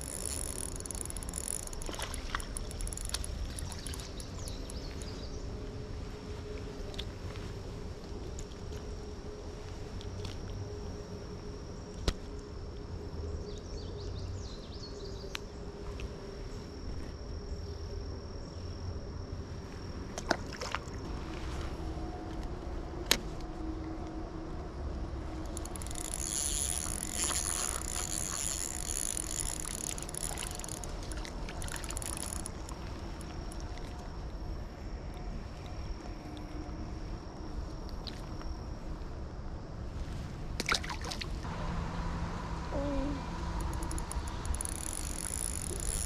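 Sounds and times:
fishing reel bail clicks: 0.0s - 5.1s, 25.4s - 33.9s, 43.6s - 46.0s
fishing reel whirring: 0.0s - 5.1s, 25.3s - 34.0s, 42.8s - 46.0s.

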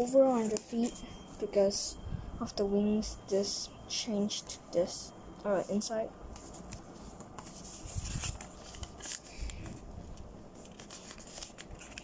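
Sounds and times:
paper rustling and crinkling: 0.2s - 1.1s, 6.3s - 12.0s.

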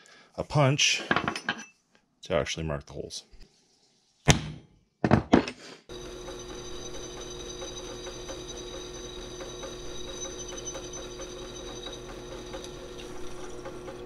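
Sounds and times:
drill press drilling aluminium: 5.9s - 14.0s.

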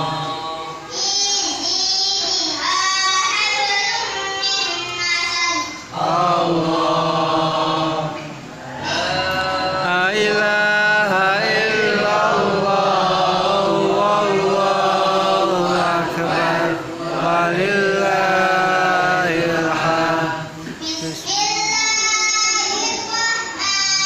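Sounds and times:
boy chanting melodically: 0.0s - 24.0s.

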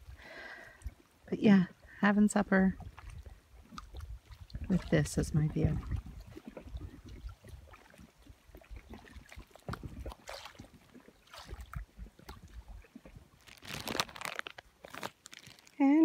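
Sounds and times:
waves lapping against shore: 0.0s - 15.9s
wind on microphone: 2.6s - 13.3s.

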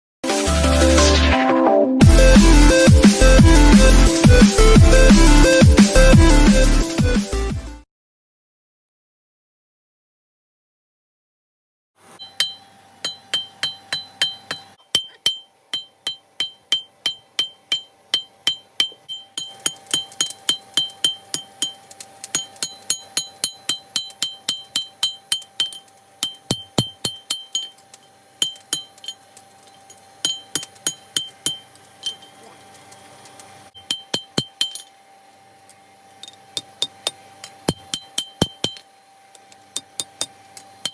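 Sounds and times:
hammer striking blade on anvil: 12.2s - 32.5s, 33.8s - 35.0s, 36.2s - 38.9s, 39.7s - 40.9s.

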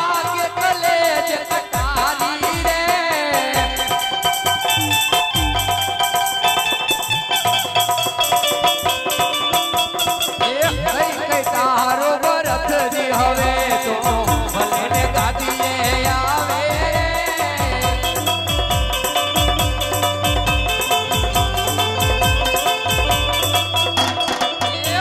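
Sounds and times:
jingling rattle percussion: 0.0s - 25.0s
deep drum beats: 1.6s - 9.3s, 10.4s - 25.0s
melody of held notes: 15.2s - 25.0s.

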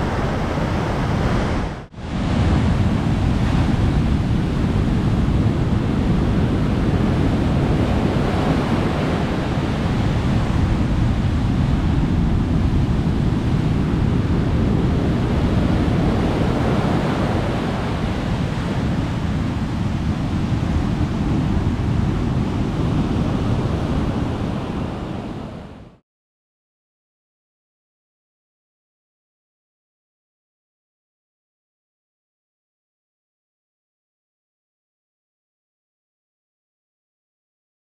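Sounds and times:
sea waves washing onto shore: 0.0s - 25.8s
wind on the microphone: 0.0s - 26.0s.

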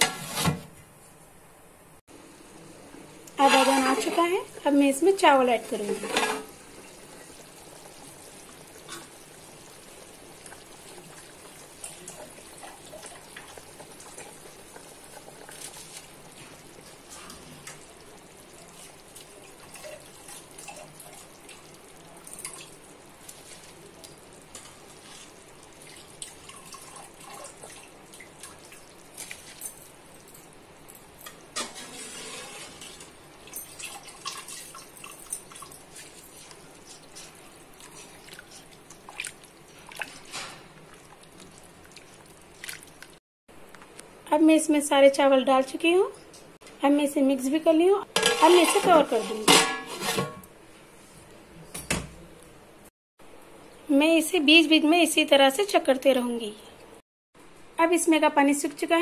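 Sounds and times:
broth boiling in a pot: 2.1s - 46.2s.

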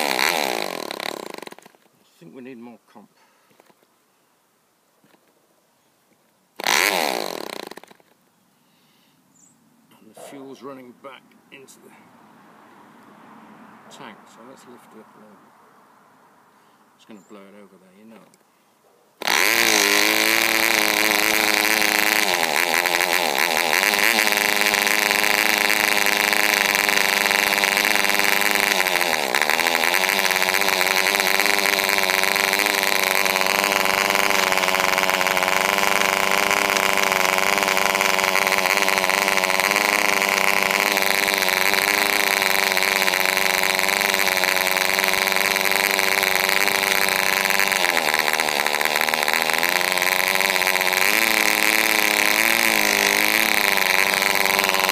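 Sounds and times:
model engine running at high speed: 0.0s - 1.7s, 6.6s - 8.0s, 19.2s - 54.9s.

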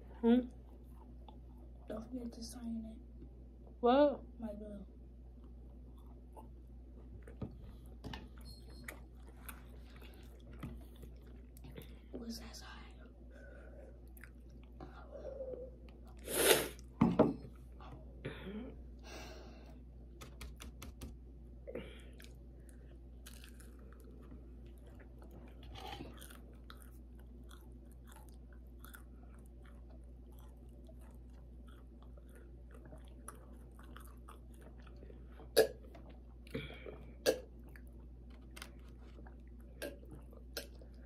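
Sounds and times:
person chewing crispy food: 5.4s - 12.0s, 13.9s - 14.8s, 22.1s - 36.5s, 37.6s - 41.0s.

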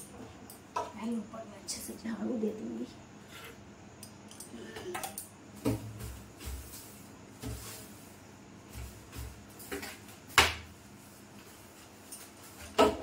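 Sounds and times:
broom sweeping a shelf: 5.6s - 13.0s.

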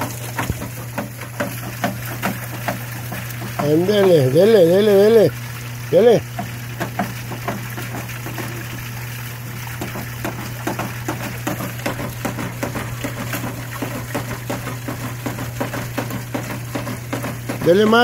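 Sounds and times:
water splashing onto grass: 0.0s - 18.0s.

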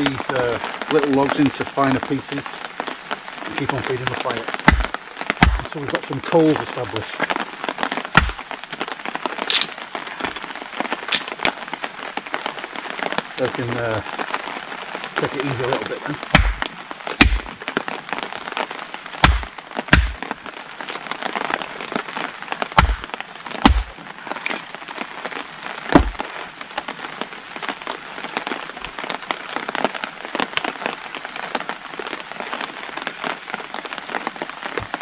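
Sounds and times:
rain on a tarp: 0.0s - 35.0s
axe chopping wood: 4.6s - 5.7s, 8.1s - 8.4s, 16.3s - 17.6s, 19.2s - 20.3s, 22.8s - 24.7s, 25.9s - 26.2s.

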